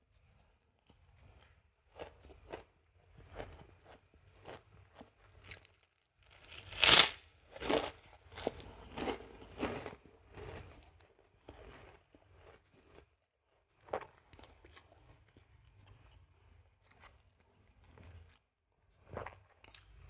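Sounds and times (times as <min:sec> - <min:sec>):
soft chewing and mouth sounds: 0:00.0 - 0:06.6, 0:07.5 - 0:20.0
cracker crunching: 0:03.3 - 0:13.1.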